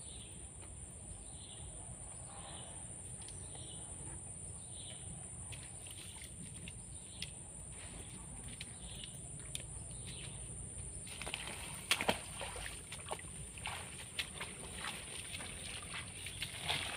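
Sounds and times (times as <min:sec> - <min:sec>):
birds chirping: 0:04.6 - 0:11.6, 0:12.4 - 0:16.9.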